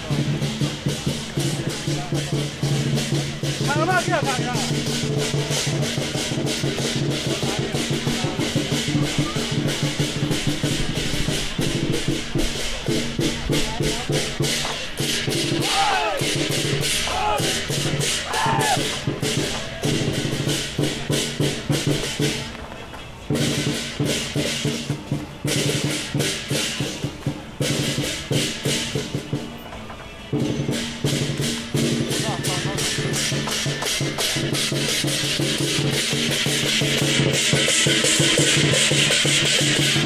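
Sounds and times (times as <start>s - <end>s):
sharp percussion hits: 0.0s - 22.5s, 23.2s - 40.0s.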